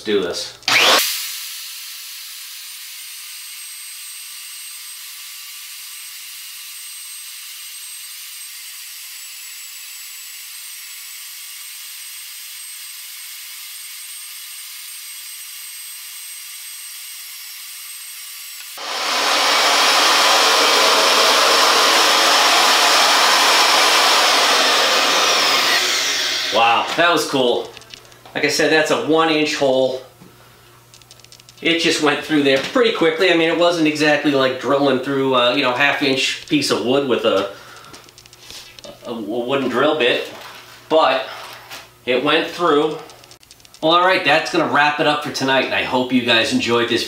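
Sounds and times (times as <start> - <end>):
magnetic drill cutting steel: 0.6 - 28.0.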